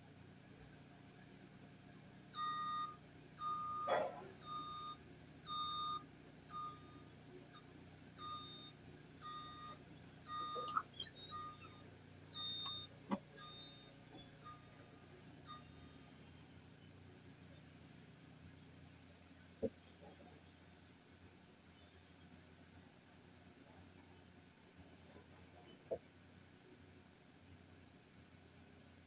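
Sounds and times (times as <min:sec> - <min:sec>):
short electronic beeps: 0:02.4 - 0:16.1.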